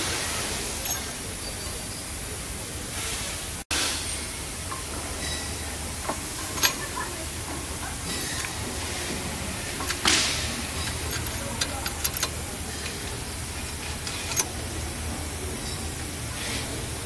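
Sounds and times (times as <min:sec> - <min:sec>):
steady hiss: 0:00.0 - 0:17.0
clicks and knocks of parts handled: 0:06.0 - 0:14.6.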